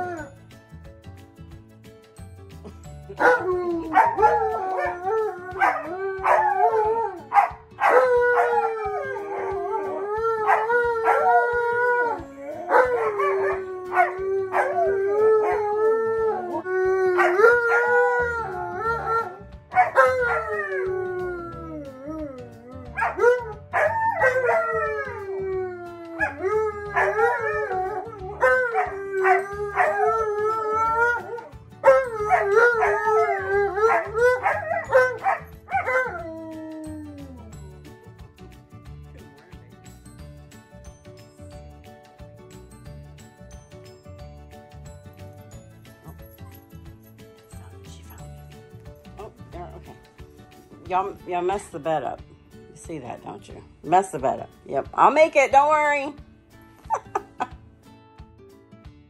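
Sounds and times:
dogs howling: 0:03.2 - 0:37.4.

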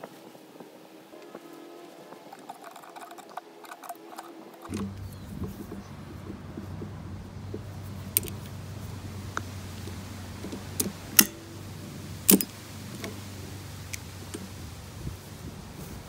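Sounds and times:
low hum: 0:02.2 - 0:16.0
pliers clicking on metal clamp: 0:08.1 - 0:08.4, 0:10.4 - 0:11.4, 0:12.3 - 0:13.2.

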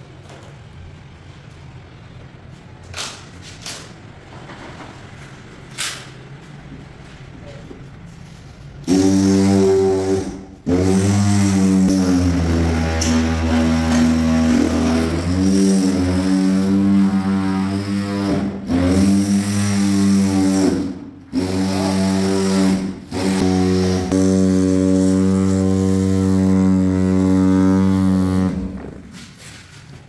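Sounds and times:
power tool motor humming: 0:08.9 - 0:28.7.

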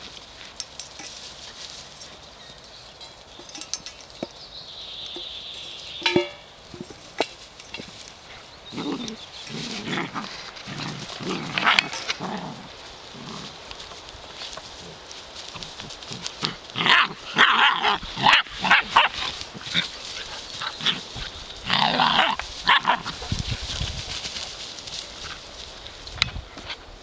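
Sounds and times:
puppies growling and yapping: 0:08.7 - 0:13.6.

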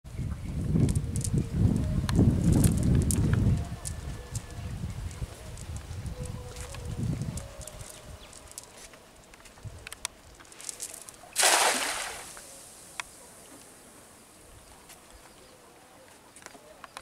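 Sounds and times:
net splashing into water: 0:11.4 - 0:12.5.

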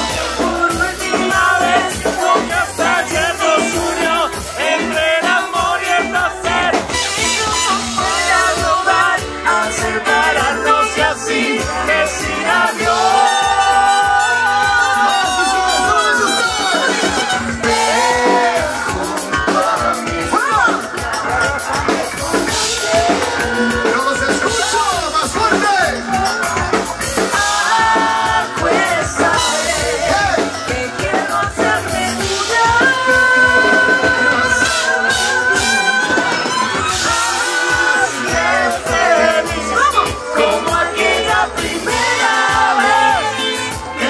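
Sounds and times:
live band playing: 0:00.0 - 0:44.0
woman singing into microphone: 0:27.4 - 0:43.9.

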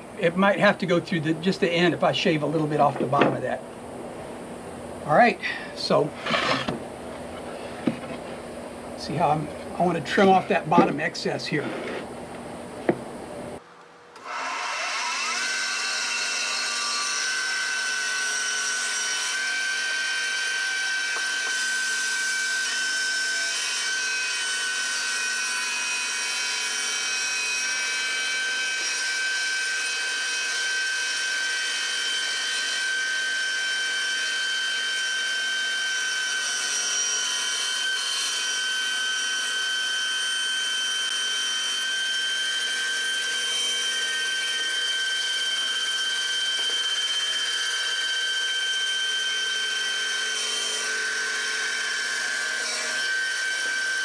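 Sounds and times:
table saw motor whining: 0:14.2 - 0:54.0.

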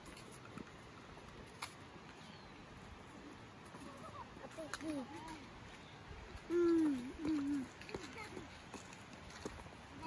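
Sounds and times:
toddler vocalizing: 0:06.5 - 0:07.7.

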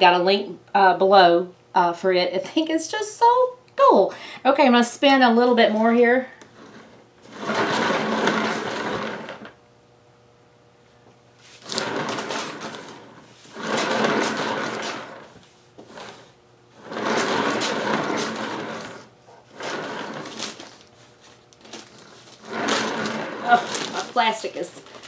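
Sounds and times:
turntable spinning whirr: 0:06.4 - 0:09.6, 0:11.5 - 0:24.6.

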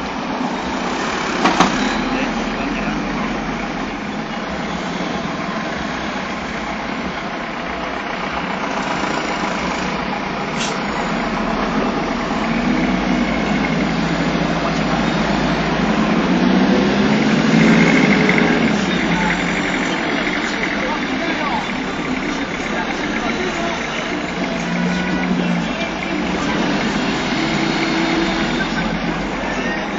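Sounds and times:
traffic engines running: 0:00.0 - 0:29.9.

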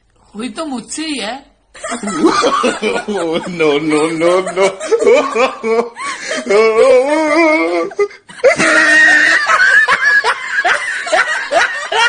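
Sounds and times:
person crying out: 0:05.3 - 0:09.6.

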